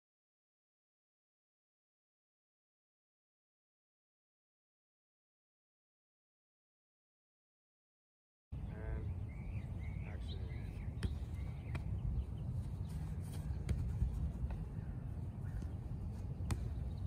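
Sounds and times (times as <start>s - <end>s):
bird chirps: 8.6s - 13.7s
soccer ball being kicked: 10.7s - 17.0s.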